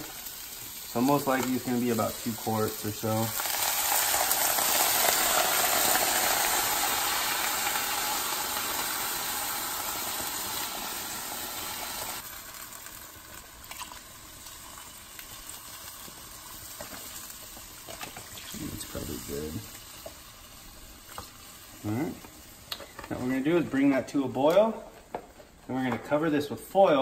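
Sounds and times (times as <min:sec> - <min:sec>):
stock pouring into hot pot: 0:00.0 - 0:19.8.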